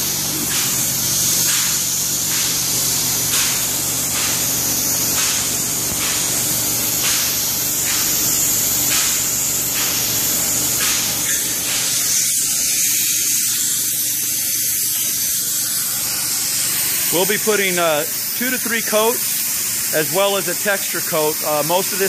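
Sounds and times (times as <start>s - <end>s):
spray gun hissing: 0.0s - 22.0s.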